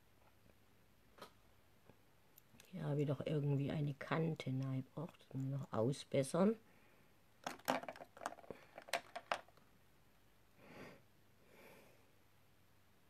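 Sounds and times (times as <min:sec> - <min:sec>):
soft breaths through nose: 0:10.6 - 0:12.2.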